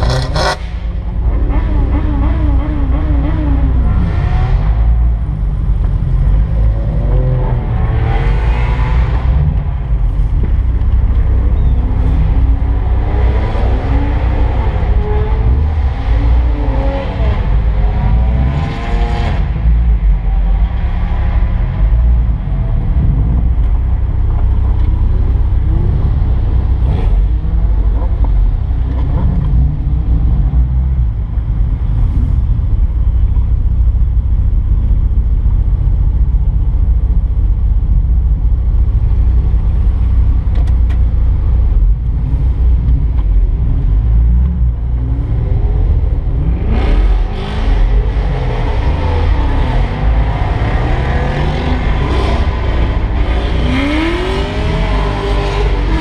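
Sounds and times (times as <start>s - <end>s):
car engines revving: 0.0s - 56.0s
car engine idling: 27.4s - 46.4s.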